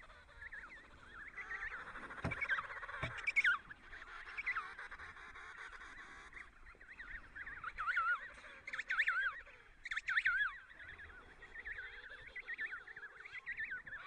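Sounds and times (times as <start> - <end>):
penguin chicks whistling calls: 0.0 - 5.0, 6.0 - 14.0
brief thumps: 2.2 - 3.4.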